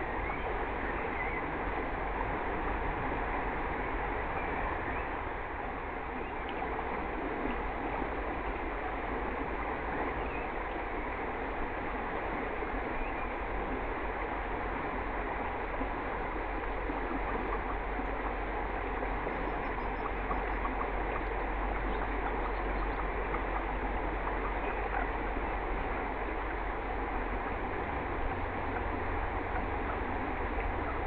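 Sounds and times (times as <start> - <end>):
river water flowing: 0.0 - 31.0.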